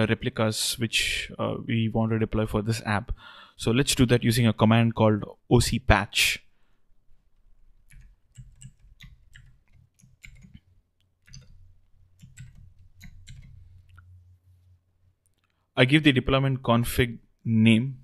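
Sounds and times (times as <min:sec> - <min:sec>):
keyboard keys clicking: 0:07.9 - 0:10.6, 0:11.2 - 0:11.6, 0:12.2 - 0:14.0.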